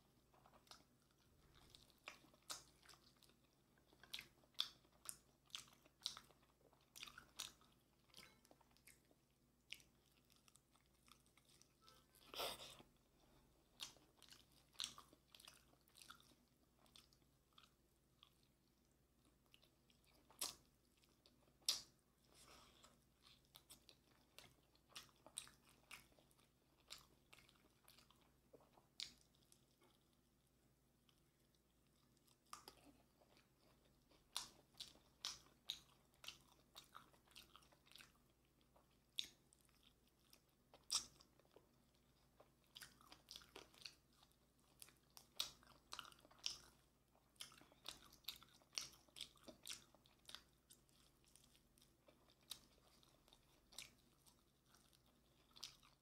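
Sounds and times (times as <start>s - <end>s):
crunchy chewing: 13.7s - 18.5s, 31.9s - 56.0s.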